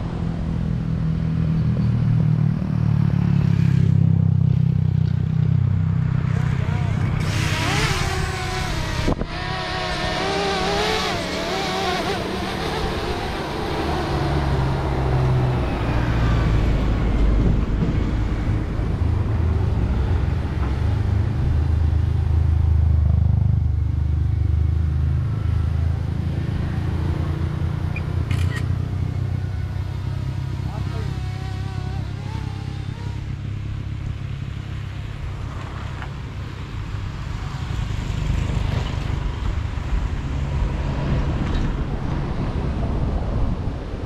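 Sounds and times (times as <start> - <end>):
drone propellers whining: 6.6 - 19.1, 27.9 - 33.4.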